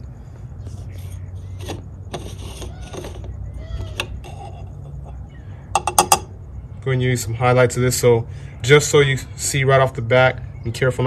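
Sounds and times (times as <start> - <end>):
cap threads scraping and squeaking: 0.6 - 6.4.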